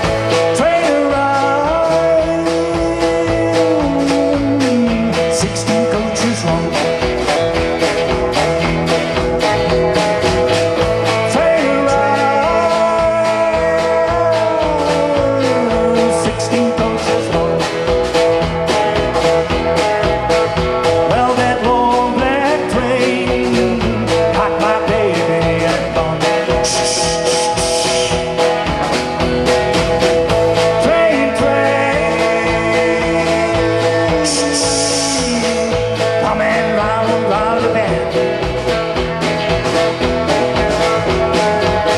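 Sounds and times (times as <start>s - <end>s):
lead vocal singing: 0.0s - 7.2s, 11.0s - 18.0s, 21.0s - 28.4s, 30.6s - 38.6s
live rock band playing: 0.0s - 41.9s.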